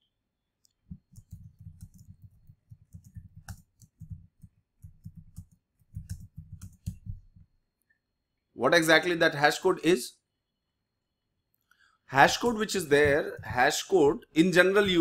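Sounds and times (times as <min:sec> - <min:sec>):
typing on computer keyboard: 0:00.9 - 0:07.4.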